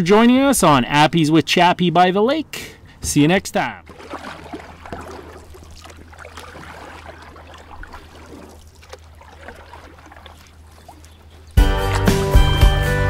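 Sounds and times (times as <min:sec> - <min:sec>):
water lapping: 0:03.6 - 0:13.0
small splashes: 0:03.8 - 0:12.8.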